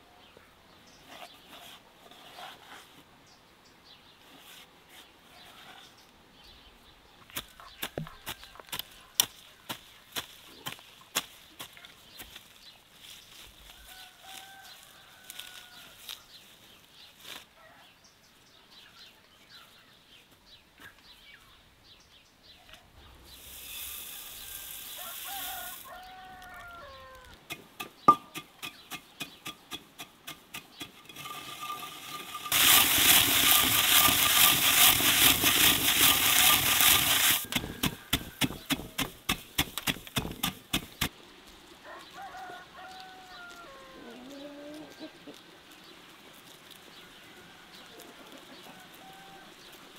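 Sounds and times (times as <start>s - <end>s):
bird calls: 5.3s - 14.8s
gritty grinding rasp: 23.3s - 25.9s, 27.5s - 41.1s
peppercorns rattling into grinder: 23.4s - 25.9s, 29.3s - 39.0s
stone grinder clicking: 27.5s - 41.1s.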